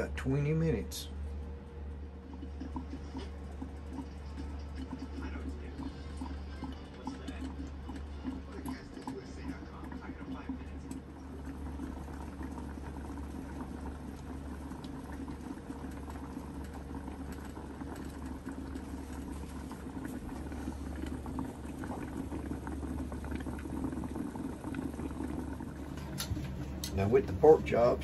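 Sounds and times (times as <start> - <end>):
low steady hum: 0.0 - 28.0
meat bubbling and sizzling in pan: 1.9 - 28.0.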